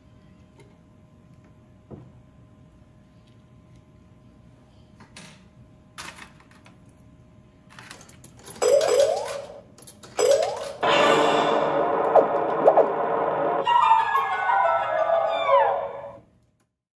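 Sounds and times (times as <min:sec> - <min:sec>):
dense electronic tune: 0:10.8 - 0:16.2.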